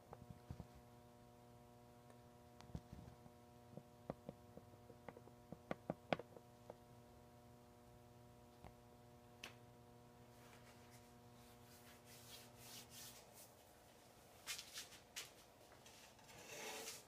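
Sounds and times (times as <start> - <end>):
faint electrical hum: 0.0 - 17.0.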